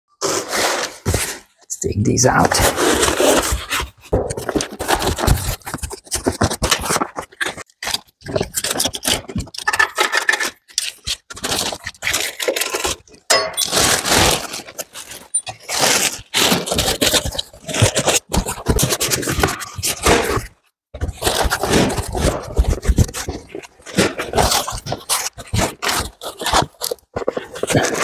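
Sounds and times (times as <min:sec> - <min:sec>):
foam panels scraping: 0:00.2 - 0:01.6, 0:02.3 - 0:09.4.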